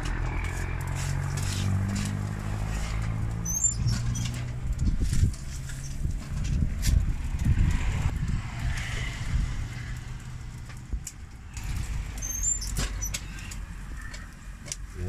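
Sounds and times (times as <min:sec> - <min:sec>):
vehicle engine rumble: 0:00.0 - 0:15.0
metal spatula scraping griddle: 0:00.4 - 0:07.0.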